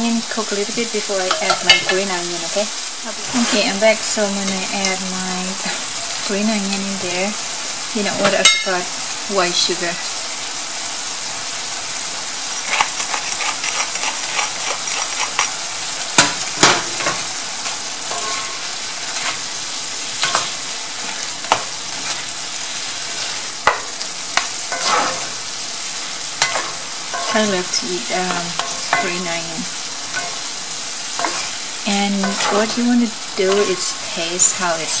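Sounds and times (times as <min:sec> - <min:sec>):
food sizzling in a skillet: 0:00.0 - 0:35.0
utensils knocking and scraping pan: 0:01.2 - 0:02.1, 0:12.6 - 0:15.6, 0:18.1 - 0:19.4, 0:20.2 - 0:22.2, 0:23.2 - 0:25.4, 0:26.4 - 0:30.6, 0:31.2 - 0:34.6.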